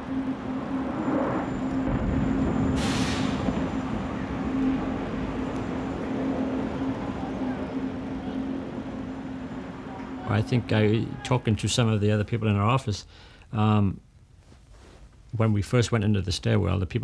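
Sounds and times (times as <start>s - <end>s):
vehicle engine hum: 0.0s - 11.8s
short sharp hiss: 2.8s - 3.4s.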